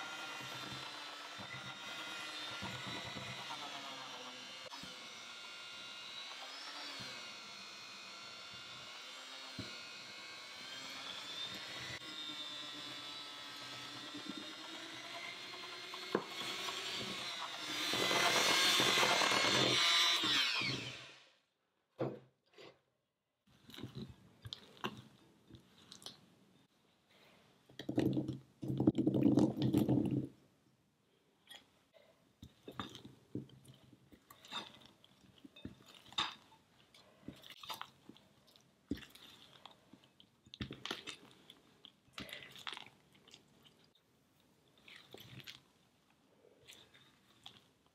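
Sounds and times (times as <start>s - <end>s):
electric hand mixer beating batter: 0.0s - 21.3s.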